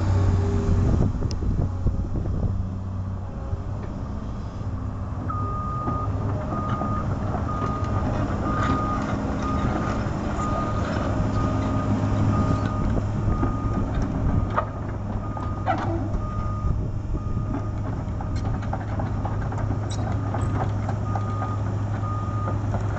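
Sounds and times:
excavator diesel engine: 0.0s - 22.9s
travel alarm beeping: 5.3s - 7.9s.

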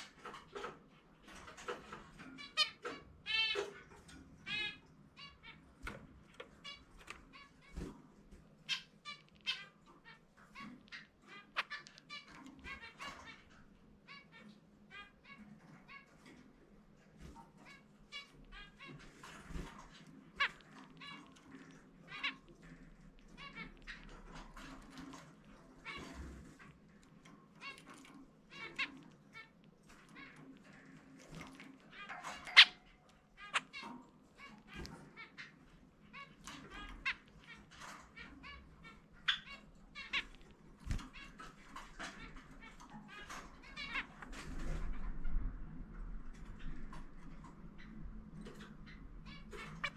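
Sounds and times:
zebra finch singing: 8.6s - 13.5s, 17.7s - 26.6s, 27.2s - 44.9s.

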